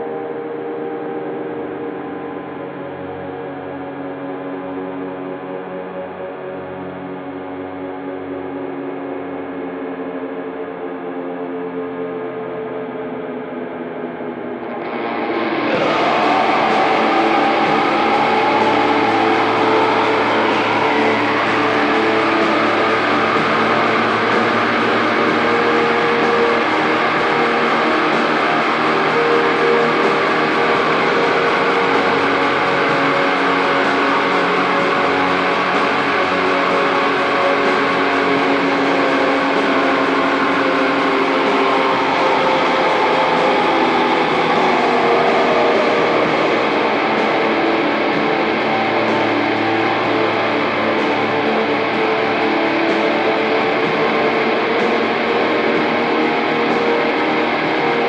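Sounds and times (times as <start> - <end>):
distorted electric guitars: 0.0 - 58.0
sliding guitar lead line: 14.2 - 58.0.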